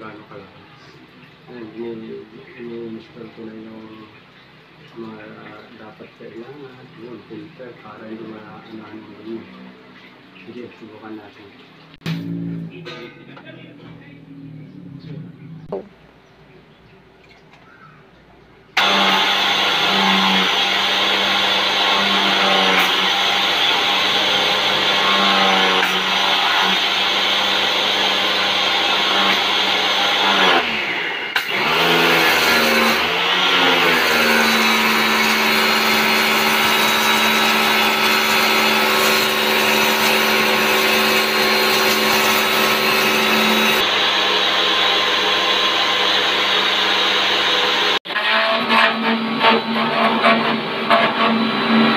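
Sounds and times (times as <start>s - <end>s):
pressure washer motor whining: 18.8s - 48.0s.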